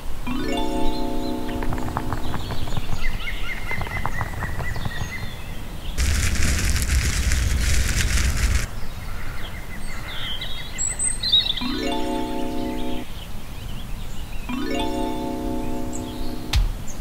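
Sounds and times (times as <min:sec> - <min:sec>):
crackling zap with rumble: 0:02.3 - 0:08.7
steady high tone: 0:11.6 - 0:13.1.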